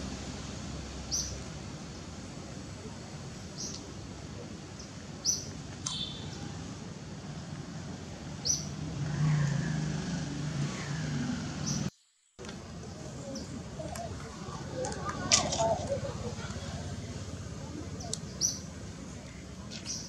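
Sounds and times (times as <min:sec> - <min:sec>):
steady background hiss: 0:00.0 - 0:20.0
bird chirping: 0:01.0 - 0:01.4, 0:04.8 - 0:06.5, 0:08.4 - 0:08.8, 0:17.9 - 0:20.0.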